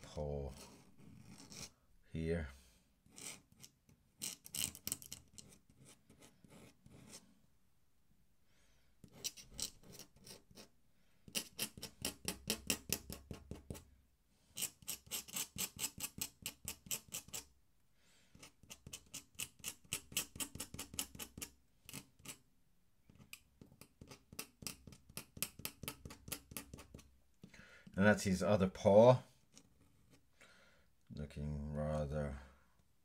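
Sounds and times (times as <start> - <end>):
pen nib scratching on paper: 0.6 - 1.7, 3.1 - 7.2, 9.0 - 10.7, 11.3 - 13.8, 14.5 - 17.5, 18.4 - 22.4, 23.1 - 27.1.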